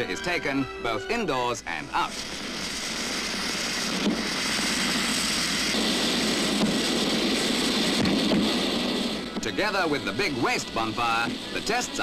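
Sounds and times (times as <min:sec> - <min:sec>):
fireworks hissing: 0:00.0 - 0:12.0
sharp firework crack: 0:02.0 - 0:12.0.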